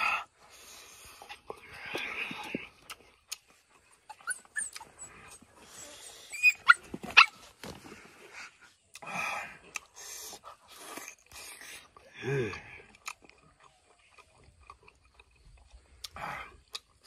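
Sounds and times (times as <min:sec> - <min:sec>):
person eating with hands: 0:00.3 - 0:07.2, 0:08.6 - 0:17.0
dog whining and yelping: 0:04.0 - 0:07.6.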